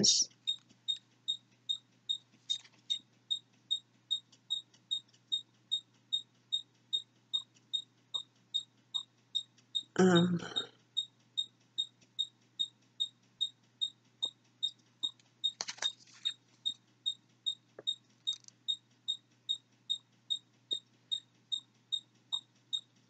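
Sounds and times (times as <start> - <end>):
rustle of handling: 15.6 - 16.6.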